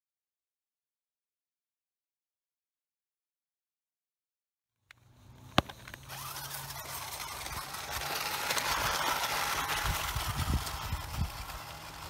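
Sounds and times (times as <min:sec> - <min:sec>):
toy truck motor whirring: 0:04.9 - 0:12.0.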